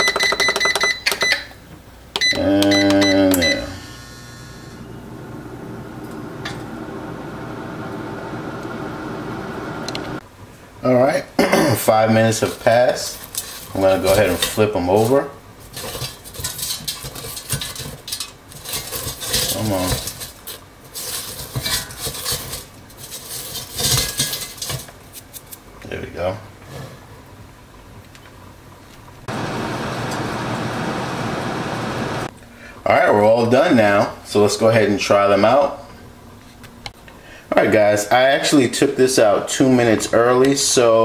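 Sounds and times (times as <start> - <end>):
air fryer fan whirring: 3.1 - 10.2, 29.2 - 32.3
patties scraping in air fryer basket: 12.2 - 25.6.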